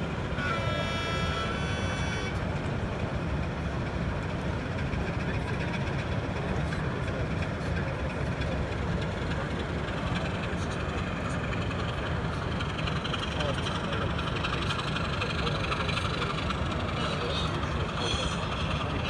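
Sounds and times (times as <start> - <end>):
low engine rumble: 0.0 - 19.0
model locomotive horn: 0.3 - 2.5, 17.9 - 18.9.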